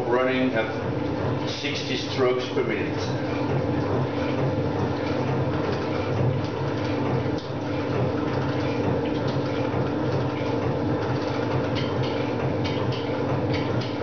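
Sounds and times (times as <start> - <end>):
steady mechanical hum: 0.0 - 14.0.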